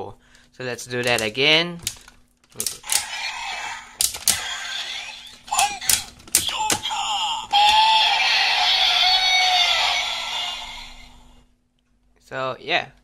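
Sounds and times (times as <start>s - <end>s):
plastic toy clicks and snaps: 1.0s - 3.1s, 4.0s - 4.5s, 5.4s - 6.9s
electronic toy sound effects: 2.8s - 11.3s.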